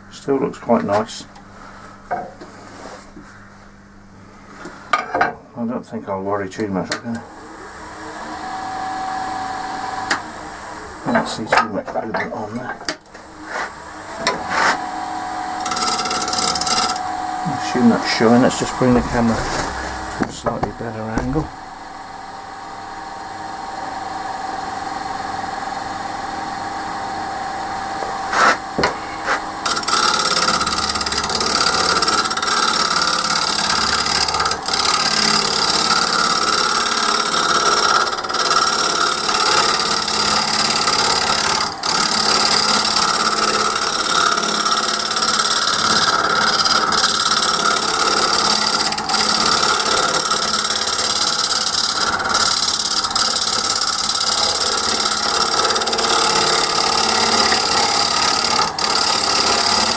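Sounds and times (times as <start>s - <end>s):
wood lathe motor humming: 13.1s - 59.9s
gouge cutting wood: 15.5s - 17.1s, 17.7s - 21.6s, 28.3s - 59.9s.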